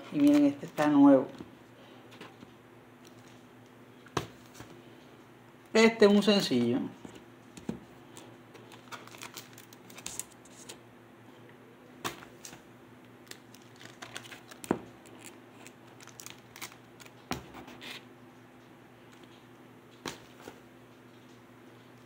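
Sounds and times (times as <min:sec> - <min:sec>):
plastic sleeves crinkling: 0:00.0 - 0:01.4, 0:08.0 - 0:10.8, 0:13.2 - 0:18.0.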